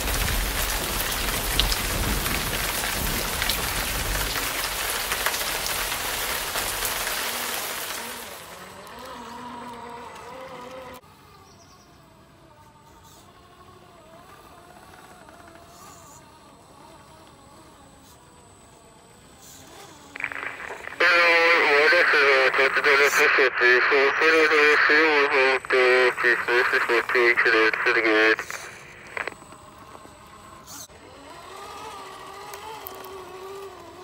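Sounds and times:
thunder rumble: 0.0 - 7.2
rain hiss: 0.0 - 9.1, 19.4 - 29.4
electric motor whine: 6.0 - 20.3, 29.0 - 34.0.

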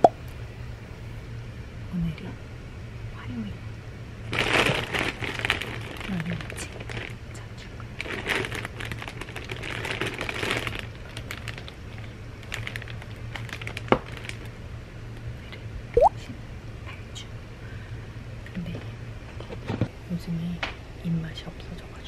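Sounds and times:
plastic bag crinkling: 4.3 - 7.2, 8.0 - 14.5.

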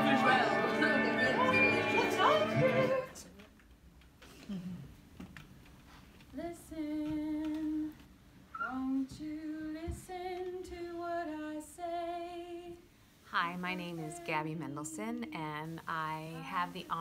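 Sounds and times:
woman singing slow melody: 6.4 - 8.0, 8.6 - 12.8, 13.4 - 16.8.

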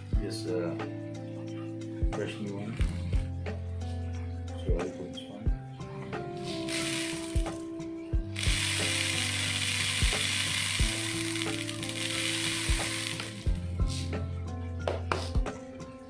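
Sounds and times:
background music with steady beat: 0.0 - 16.0
carbon granules pouring into funnel: 6.4 - 7.7, 8.4 - 13.6.

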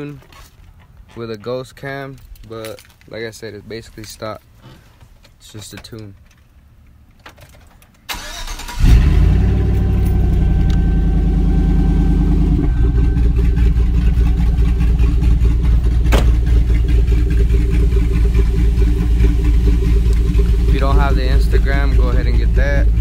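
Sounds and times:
starter cranking engine: 8.1 - 10.4
car engine idling choppily: 9.2 - 23.0.

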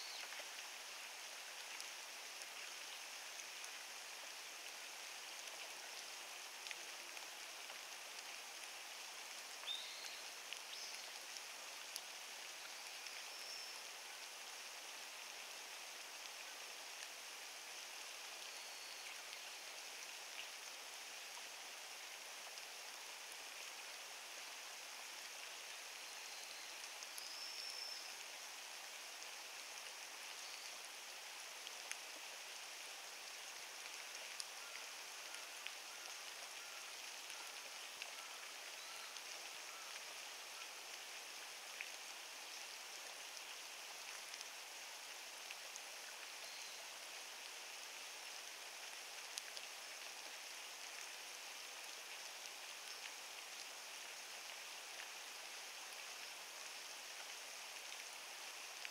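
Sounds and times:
light rain falling: 0.0 - 58.9.

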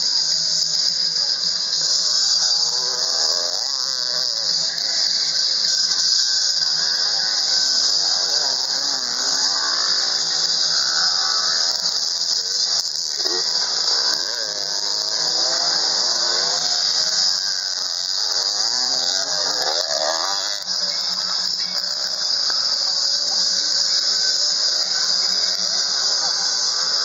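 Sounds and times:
dirt bike engines revving: 0.0 - 27.0
steady high-pitched hiss: 0.0 - 27.0.

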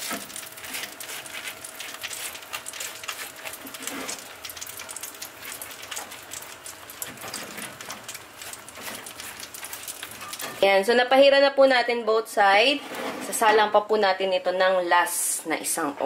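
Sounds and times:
oil crackling and sizzling on pork: 0.0 - 11.5.

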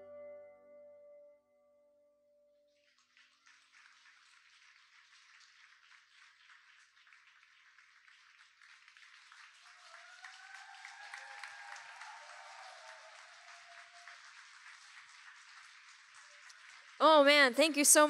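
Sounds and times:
audience applauding: 2.8 - 18.0
crowd cheering: 9.0 - 18.0.

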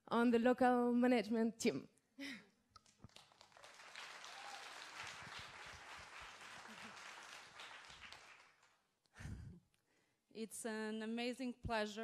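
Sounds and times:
faint audience applause: 2.8 - 8.8.

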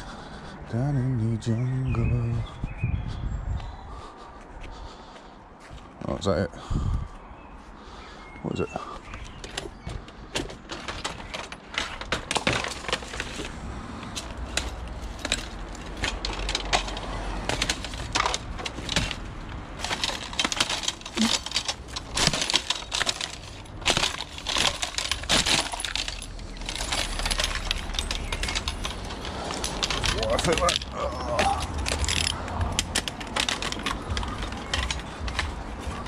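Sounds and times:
metal rack rattling and clanking: 9.4 - 36.0.

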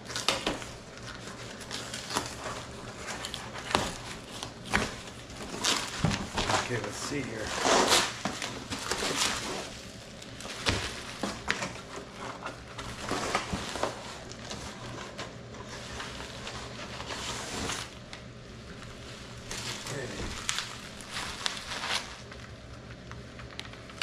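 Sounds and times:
bubble wrap crinkling: 0.0 - 24.0
cardboard and paper rustling: 0.0 - 24.0
small knocks and crackles: 0.0 - 24.0.

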